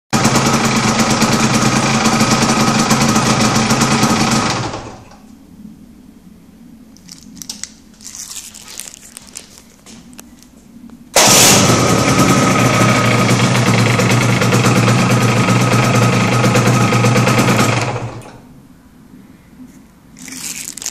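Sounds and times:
two-stroke motorcycle engine idling: 0.2 - 5.0, 11.2 - 18.2.

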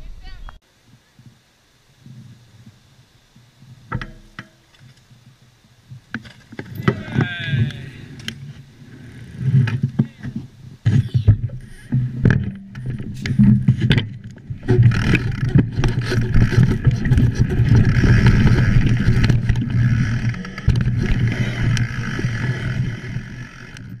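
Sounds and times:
bike rattling over bumps: 3.8 - 24.0
wind rumbling on microphone: 5.1 - 24.0.

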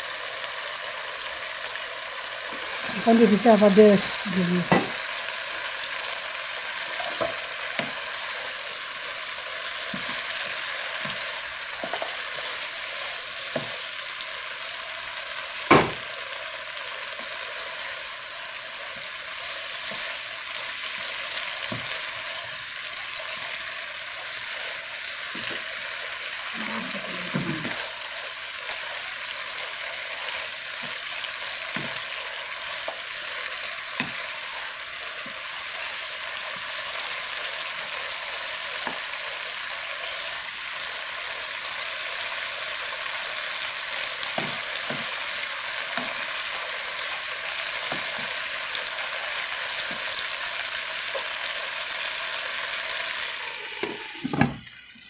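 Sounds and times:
vegetables sizzling in a frying pan: 0.0 - 55.0
wooden spatula knocking on pan: 4.6 - 5.0, 7.0 - 8.0, 9.9 - 12.2, 13.5 - 13.8, 15.7 - 16.1, 21.6 - 22.0, 25.3 - 25.6, 31.7 - 32.1, 33.9 - 34.2, 44.4 - 45.2.

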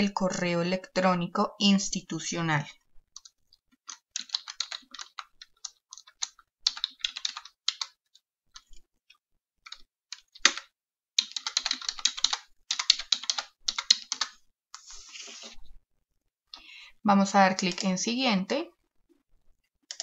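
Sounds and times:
typing on computer keyboard: 3.2 - 8.0, 9.6 - 14.4.

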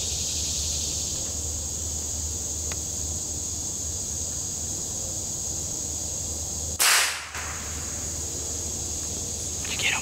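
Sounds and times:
insects droning: 0.0 - 10.0
rifle shot: 6.8 - 7.8.

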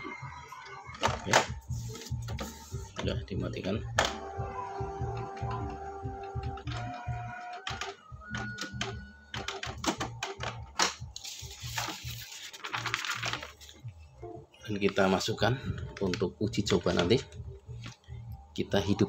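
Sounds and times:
printer motor whines: 4.0 - 9.6
printer carriage clicks: 6.2 - 11.0
paper rustling: 10.8 - 13.8.

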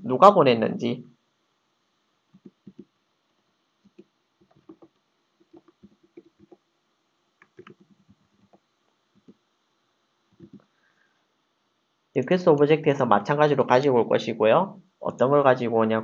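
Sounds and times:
faint keyboard typing: 2.3 - 3.0, 3.8 - 6.6, 7.4 - 9.4, 10.3 - 10.8.

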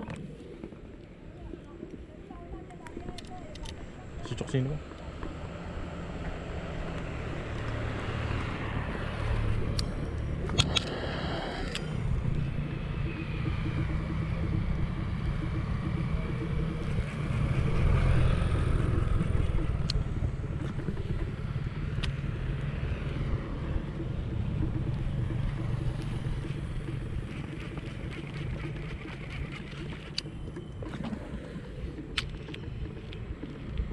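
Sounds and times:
traffic engine rumble: 0.0 - 33.9
sharp clicks: 8.9 - 33.9.

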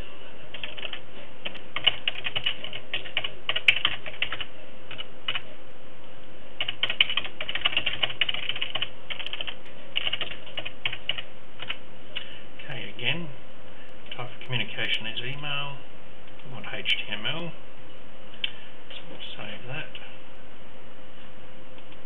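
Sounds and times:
faint steady hum: 0.0 - 22.0
keyboard typing: 0.5 - 5.4, 6.6 - 12.3.

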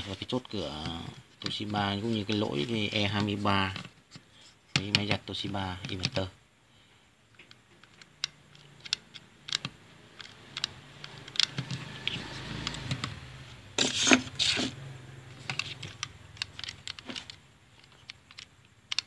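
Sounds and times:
plastic parts clicking: 0.7 - 6.3, 7.3 - 13.2, 13.8 - 19.0
scraping rustle: 13.8 - 16.0.

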